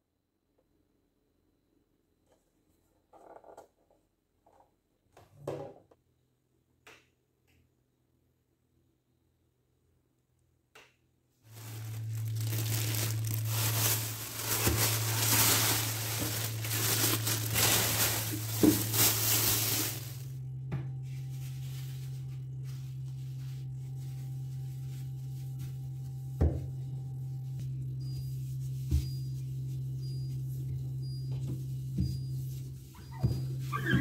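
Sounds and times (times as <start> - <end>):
plastic bags crinkling: 11.5 - 20.4
low steady hum: 11.5 - 33.8.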